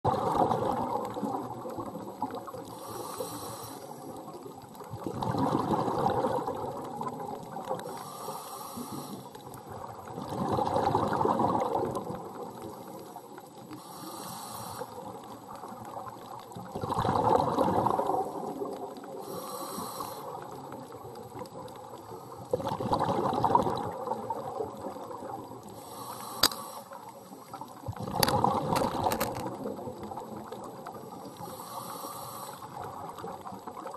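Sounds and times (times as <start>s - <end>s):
faint steady hum: 0.1s - 4.8s
diver breathing through regulator: 2.7s - 4.1s, 7.8s - 9.4s, 13.7s - 15.1s, 19.2s - 20.5s, 25.7s - 27.1s, 31.1s - 32.8s
exhaust bubbles rushing: 5.0s - 6.9s, 16.7s - 18.3s, 22.5s - 24.9s
sharp click: 26.4s - 26.6s.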